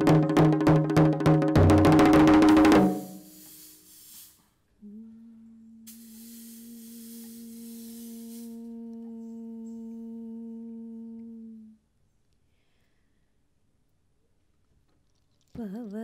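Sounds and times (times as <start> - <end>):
bright hiss: 2.6 - 4.6, 5.9 - 8.8.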